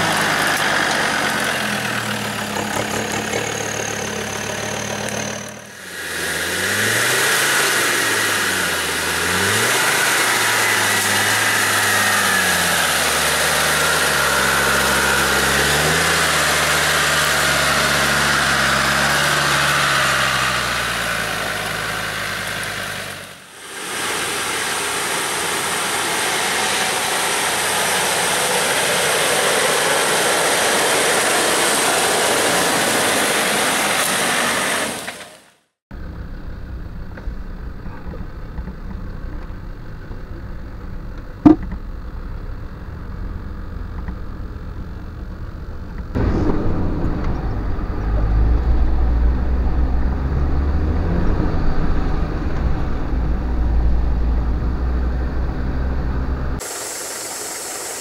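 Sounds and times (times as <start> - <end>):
diesel engines pulling uphill: 0.0 - 58.0
loud steady hiss: 3.5 - 35.4, 56.6 - 58.0.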